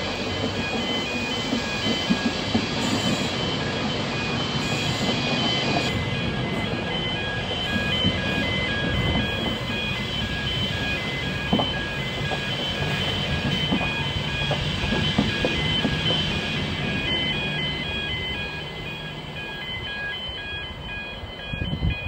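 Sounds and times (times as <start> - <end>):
train coaches rumbling past: 0.0 - 22.0
train wheel clicks: 7.8 - 20.6.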